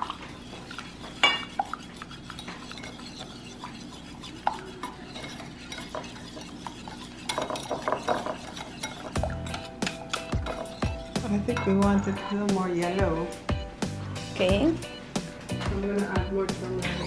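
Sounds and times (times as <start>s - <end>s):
utensil scraping batter in bowl: 0.0s - 13.0s.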